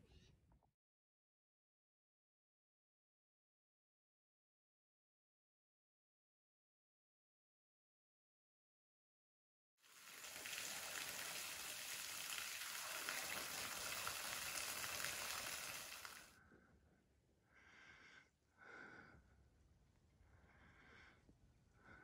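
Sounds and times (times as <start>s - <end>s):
small waterfall splashing: 9.8s - 16.3s.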